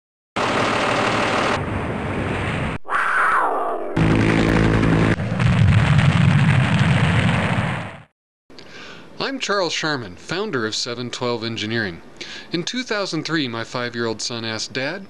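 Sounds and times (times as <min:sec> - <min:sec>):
steady engine hum: 0:00.4 - 0:02.2, 0:04.0 - 0:05.2
falling tone: 0:02.8 - 0:07.3
low rumble: 0:02.8 - 0:08.0
engine noise burst: 0:03.9 - 0:06.7.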